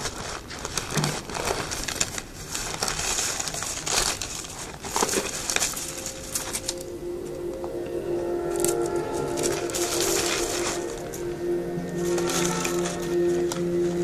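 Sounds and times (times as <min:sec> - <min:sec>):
dry cereal crunching: 0:00.0 - 0:06.2
plastic bag crinkling: 0:00.0 - 0:06.8.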